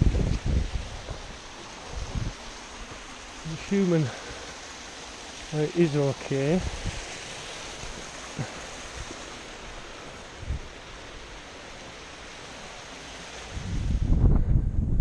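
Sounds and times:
stream cascading over rocks: 0.0s - 14.2s.

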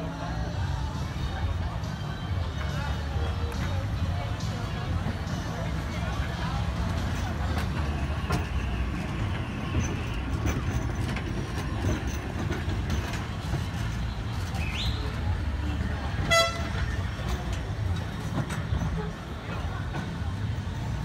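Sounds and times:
street traffic: 0.0s - 21.0s
tram rumble: 0.0s - 21.0s
high-pitched horn toot: 16.2s - 16.8s.

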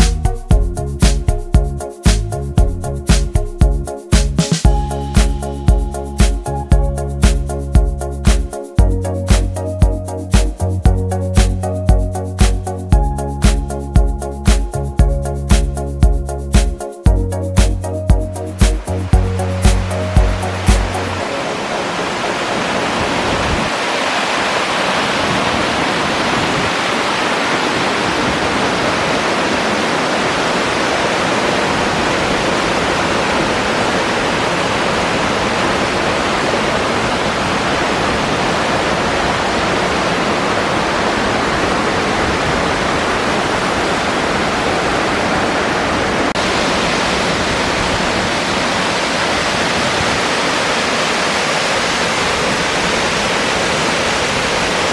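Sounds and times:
waterfall rushing and splashing: 17.6s - 54.9s.

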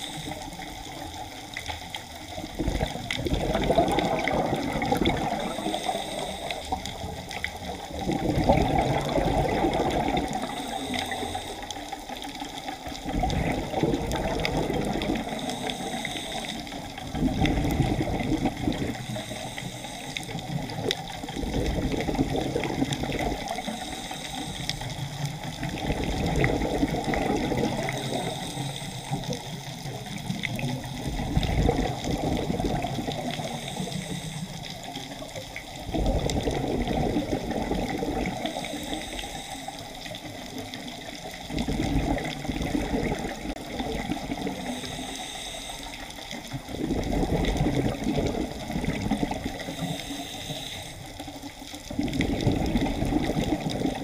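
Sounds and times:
regulator inhale hiss: 0.0s - 1.8s, 5.0s - 7.2s, 9.9s - 12.5s, 15.1s - 17.2s, 18.9s - 22.0s, 23.4s - 25.8s, 26.4s - 30.2s, 33.0s - 35.4s, 38.2s - 40.6s, 44.2s - 46.6s, 48.8s - 51.7s
exhaled bubbles rushing: 0.0s - 19.6s, 20.2s - 39.2s, 39.9s - 45.1s, 46.2s - 54.0s.

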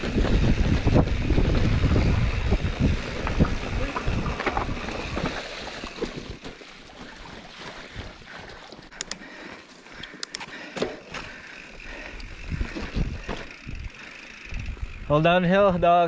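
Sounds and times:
wind on microphone: 0.0s - 5.4s, 12.3s - 15.8s
bike clicks and rattles: 0.0s - 6.7s, 8.7s - 15.5s
bike tyres on dirt trail: 0.0s - 16.0s.

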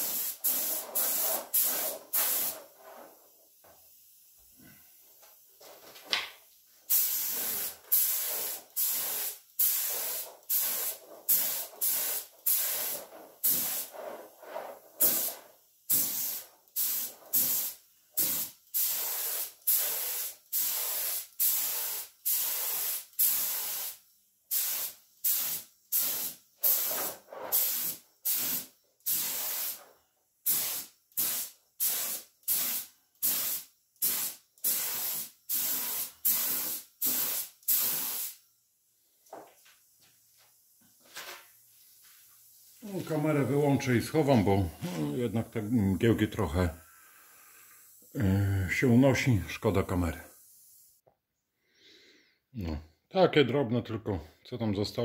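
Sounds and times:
paint spray gun hissing in bursts: 0.0s - 2.8s, 6.9s - 29.8s, 30.5s - 38.4s, 46.8s - 48.2s, 50.2s - 51.0s.

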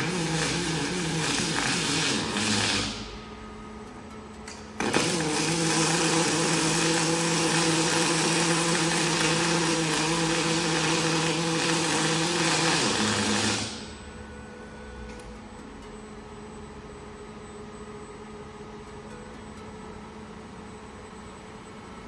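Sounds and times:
welding arc hissing and humming: 0.0s - 3.6s, 4.4s - 14.1s.

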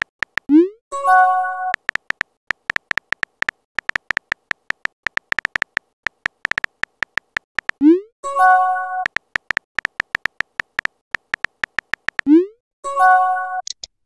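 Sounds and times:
phone keyboard typing clicks: 0.0s - 0.6s, 1.7s - 7.9s, 9.0s - 12.3s.

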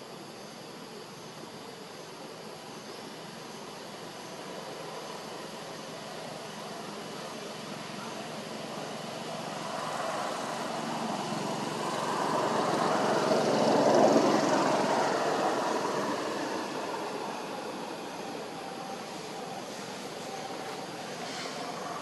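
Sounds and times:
passing engine drone: 8.3s - 22.0s.

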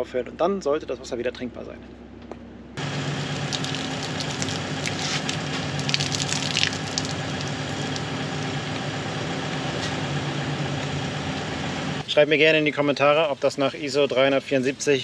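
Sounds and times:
engine idling hum: 0.0s - 14.2s
water spattering from hose: 2.8s - 9.0s.

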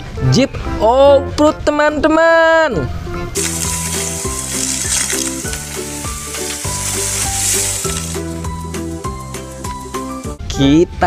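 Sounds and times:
steady hiss: 3.4s - 10.4s.

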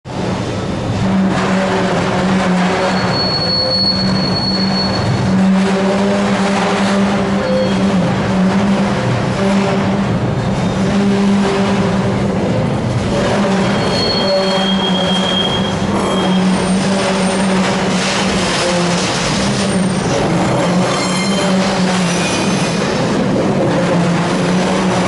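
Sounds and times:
diesel locomotive drone: 0.1s - 25.0s
high wheel squeal: 2.7s - 8.4s, 13.0s - 23.0s.

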